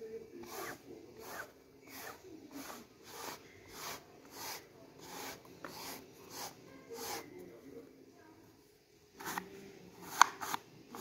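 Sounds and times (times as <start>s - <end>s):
lint roller rubbing cloth: 0.4s - 7.3s.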